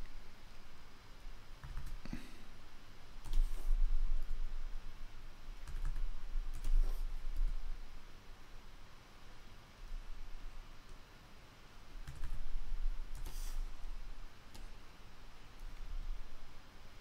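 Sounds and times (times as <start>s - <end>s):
keyboard and mouse clicks: 1.6s - 2.1s, 3.2s - 4.4s, 5.6s - 7.6s, 12.0s - 12.5s.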